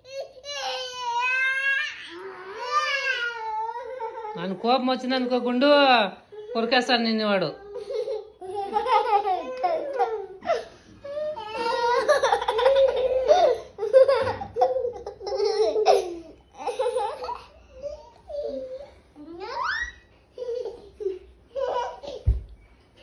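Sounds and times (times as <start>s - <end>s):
young children laughing: 7.7s - 18.8s, 19.4s - 22.4s.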